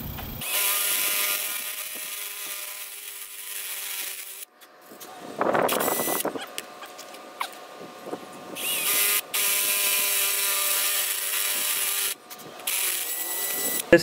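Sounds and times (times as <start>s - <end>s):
cordless drill drilling metal: 0.4s - 5.1s, 5.7s - 6.4s, 8.5s - 14.0s.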